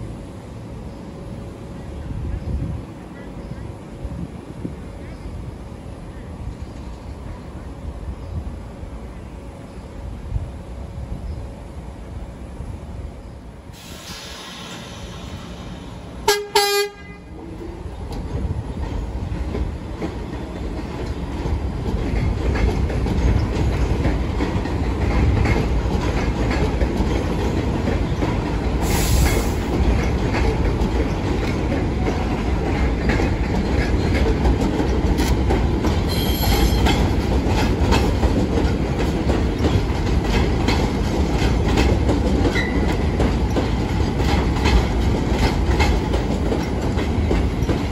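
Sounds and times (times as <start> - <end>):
subway train on elevated tracks: 0.0 - 47.9
subway train horn blast: 16.2 - 17.5.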